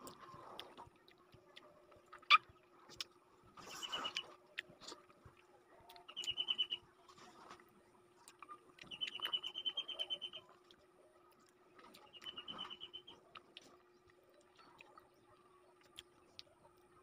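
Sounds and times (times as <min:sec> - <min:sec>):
faint chewing clicks: 0:00.0 - 0:17.0
small animal chirping trill: 0:06.0 - 0:06.9, 0:08.8 - 0:10.6, 0:11.9 - 0:13.4.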